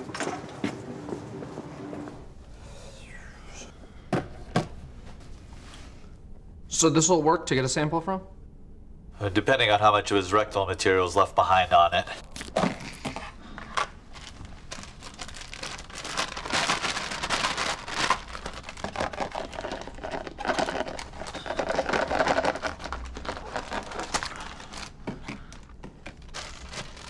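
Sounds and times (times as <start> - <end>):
plastic bag crinkling: 14.1 - 27.0.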